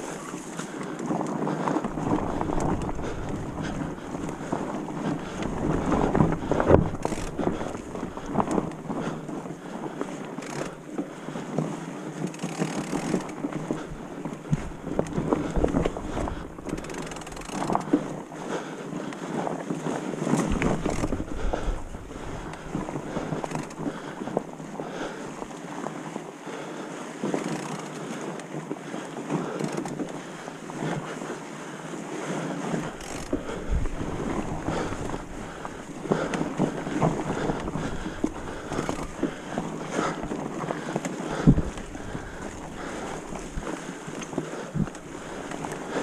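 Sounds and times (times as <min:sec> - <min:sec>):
tyres on leaves and dirt: 0:00.0 - 0:18.0, 0:32.6 - 0:46.0
wind on microphone: 0:00.0 - 0:18.3, 0:19.7 - 0:25.5, 0:32.6 - 0:46.0
bike knocks and rattles: 0:01.0 - 0:18.2, 0:20.2 - 0:24.5, 0:27.2 - 0:28.0, 0:32.8 - 0:46.0.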